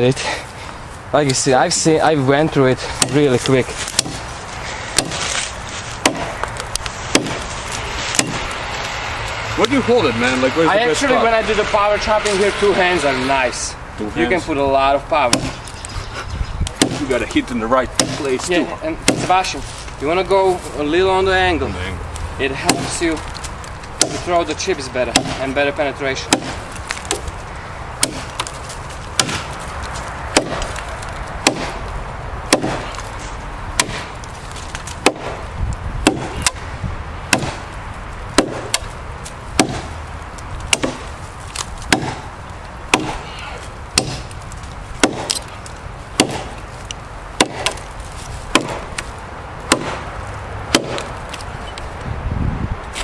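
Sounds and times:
knife chopping wood: 2.8s - 4.3s, 4.9s - 8.7s, 15.2s - 15.9s, 16.6s - 19.6s, 22.6s - 24.4s, 25.1s - 25.6s, 26.2s - 27.4s, 28.0s - 31.9s, 32.5s - 33.2s, 33.8s - 36.6s, 37.3s - 37.6s, 38.3s - 40.0s, 40.6s - 42.3s, 42.9s - 50.1s, 50.7s - 51.5s.

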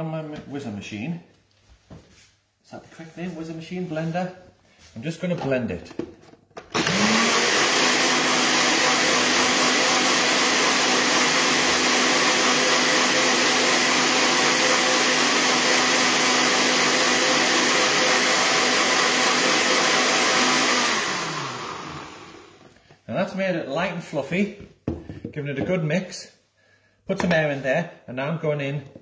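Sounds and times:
blender whirring: 6.6s - 22.8s.

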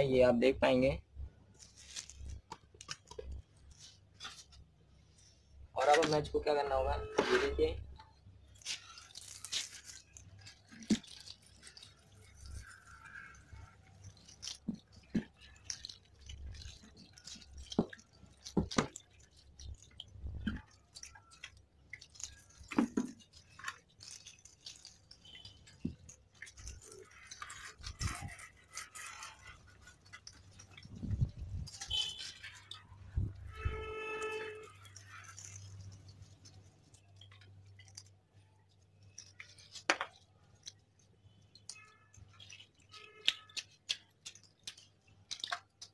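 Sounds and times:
water running from hose: 8.5s - 38.1s
hand scrubbing helmet shell: 22.3s - 36.7s.

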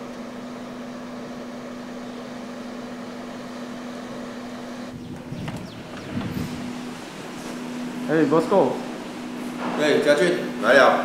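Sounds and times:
machine hum with hiss: 0.0s - 11.0s.

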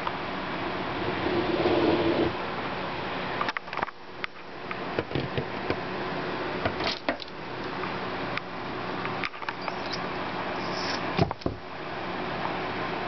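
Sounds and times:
faint high squeaks: 9.5s - 10.0s.

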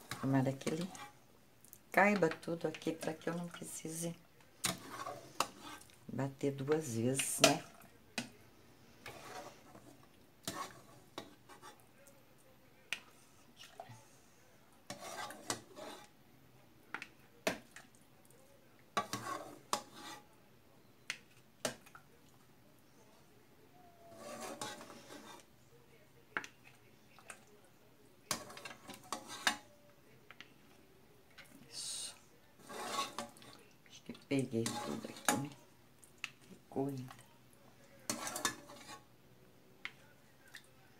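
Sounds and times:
metal ladle scraping pot: 0.0s - 1.2s, 4.6s - 6.0s, 9.0s - 11.8s, 14.9s - 16.1s, 19.0s - 20.3s, 24.1s - 25.5s, 28.3s - 29.6s, 32.6s - 33.6s, 34.4s - 35.6s, 38.0s - 39.1s.

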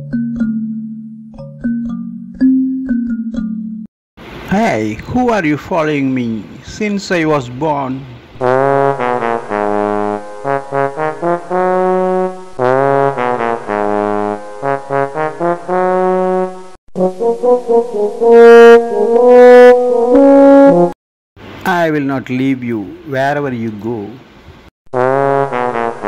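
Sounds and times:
brass band playing: 8.4s - 21.0s, 24.9s - 26.0s.

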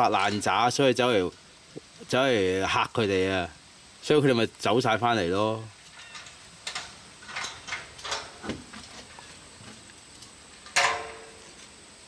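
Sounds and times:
goats rustling and stepping: 5.8s - 11.8s.

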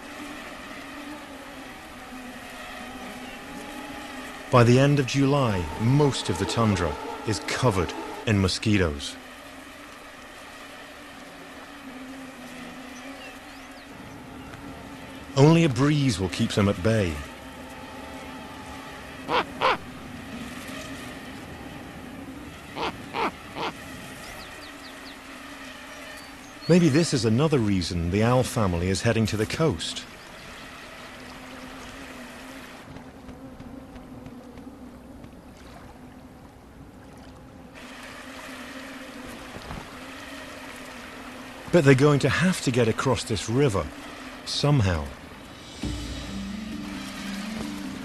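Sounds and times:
running water: 0.0s - 33.4s, 34.8s - 48.0s
low steady hum: 0.0s - 48.0s
wind: 0.0s - 48.0s
snowy owl calling: 18.3s - 20.0s, 22.7s - 25.2s.

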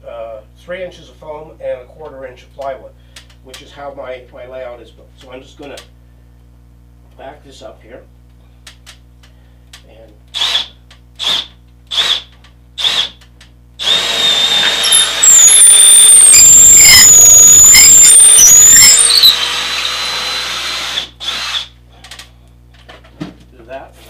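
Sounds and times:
power drill drilling: 13.8s - 21.7s.

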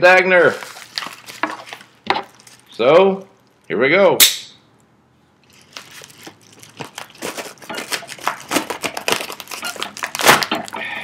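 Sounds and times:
package opened with knife: 5.6s - 10.7s.

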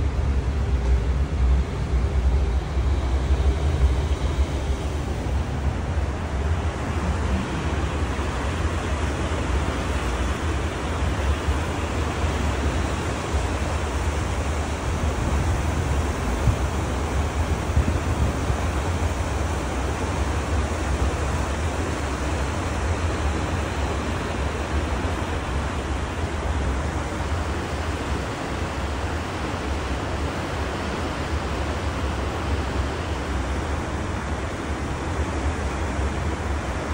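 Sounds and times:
deep rumble: 0.0s - 9.6s
churning wake water rushing: 0.0s - 36.9s.

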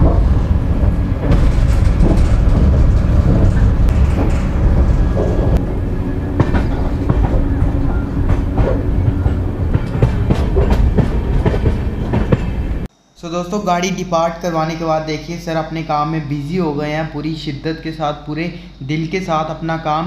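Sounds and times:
wheels clacking over rail joints: 0.0s - 12.9s
train wheels rumbling: 0.0s - 19.6s.

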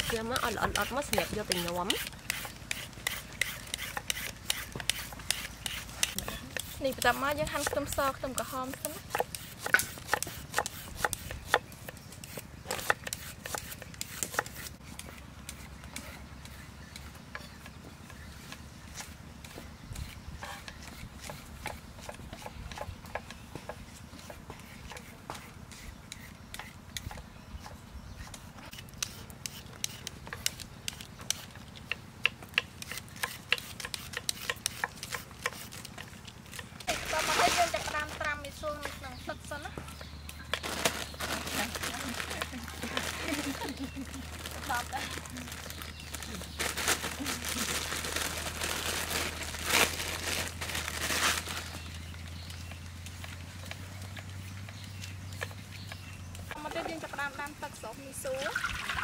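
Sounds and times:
plastic bag crinkling: 36.8s - 38.2s, 40.6s - 52.0s.

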